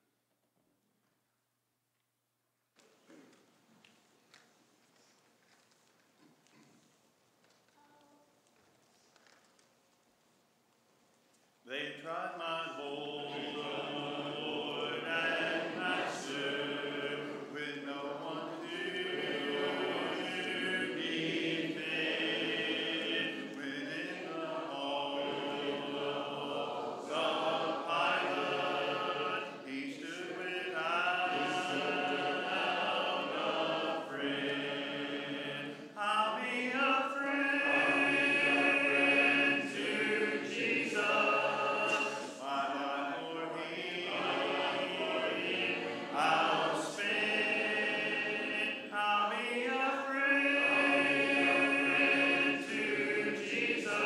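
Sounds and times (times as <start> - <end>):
congregation singing a cappella: 11.7 - 54.0.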